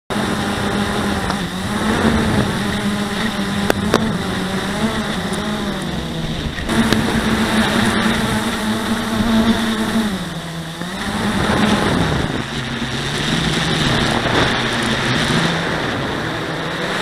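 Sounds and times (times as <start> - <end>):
quadcopter motors buzzing: 0.1 - 17.0
sharp ticks: 3.6 - 4.2.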